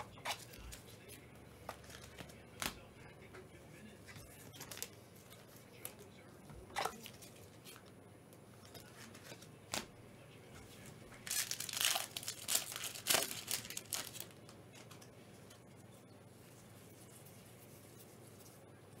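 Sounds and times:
wrapper tearing and crinkling: 11.2s - 14.9s.

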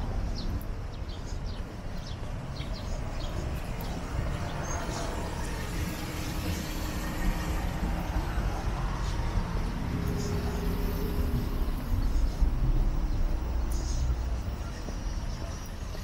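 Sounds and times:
road traffic rumble: 0.0s - 16.0s.

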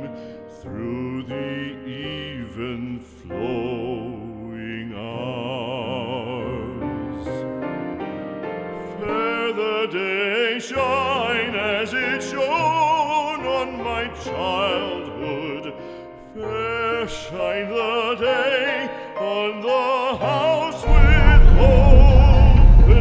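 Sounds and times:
operatic singing with vibrato: 16.5s - 23.0s.

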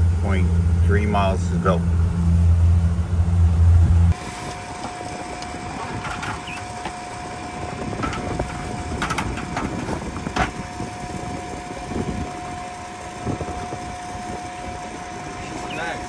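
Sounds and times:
boat engine running: 0.0s - 16.0s
steady high whine: 0.0s - 16.0s
wind noise on microphone: 3.4s - 16.0s.

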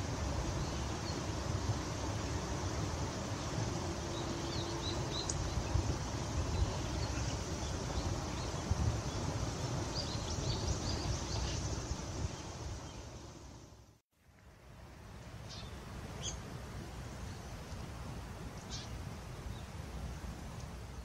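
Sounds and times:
small birds chirping: 3.4s - 13.2s, 18.6s - 19.7s.

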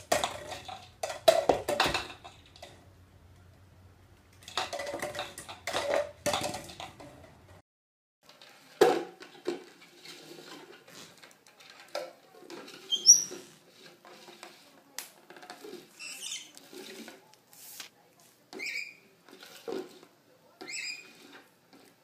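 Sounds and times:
plastic bowl scraping on wooden floor: 8.3s - 17.9s, 18.5s - 22.0s.

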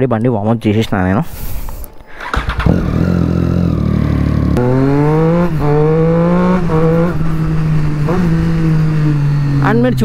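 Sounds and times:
motorcycle engine accelerating: 2.2s - 10.0s.

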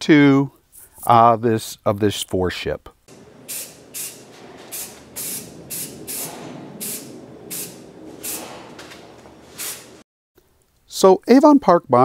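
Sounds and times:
aerosol can spraying hissing bursts: 3.1s - 8.8s, 9.5s - 10.0s.

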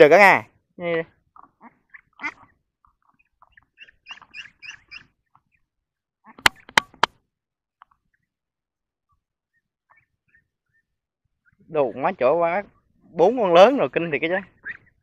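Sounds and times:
ducks quacking: 1.3s - 5.6s, 9.8s - 15.0s
sharp knocks: 6.4s - 7.1s.

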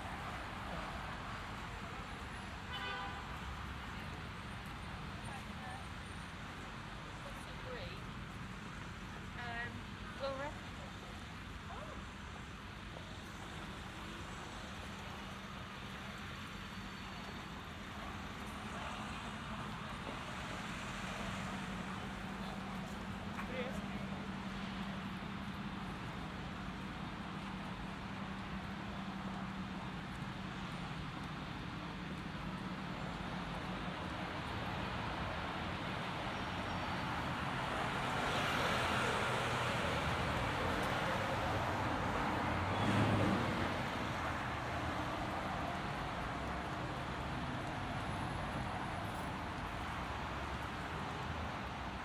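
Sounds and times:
road traffic noise: 0.0s - 52.0s
car passing: 32.6s - 52.0s.

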